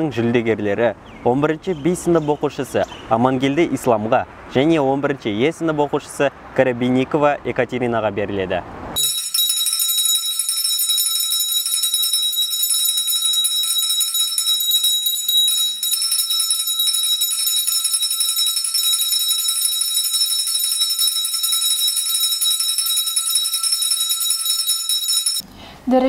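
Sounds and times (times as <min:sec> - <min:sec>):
handbells ringing: 0:09.0 - 0:25.4.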